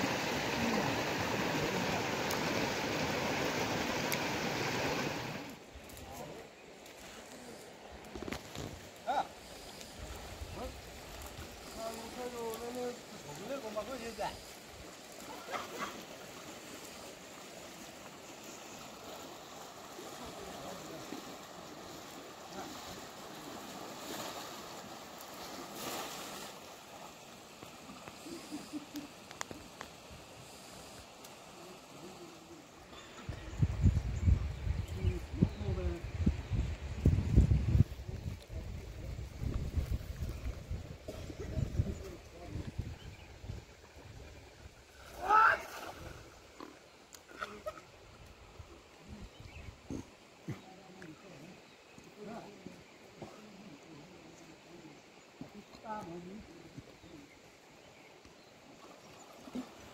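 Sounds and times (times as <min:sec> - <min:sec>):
fast-flowing river rushing: 0:00.0 - 0:05.6
water rushing over rocks: 0:00.0 - 0:05.7, 0:07.9 - 0:28.3.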